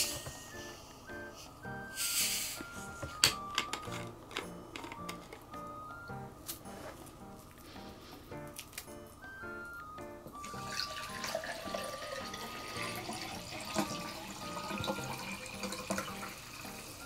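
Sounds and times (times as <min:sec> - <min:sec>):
light background music: 0:00.0 - 0:17.0
carbonated water pouring into glass: 0:10.4 - 0:17.0.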